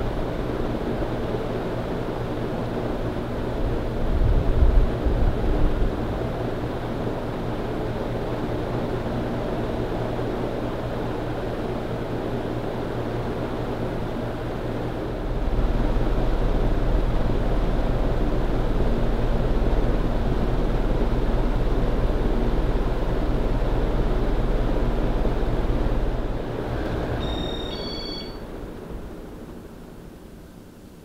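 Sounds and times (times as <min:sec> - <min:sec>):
ceiling fan running: 0:00.0 - 0:31.0
low motor hum: 0:13.3 - 0:30.4.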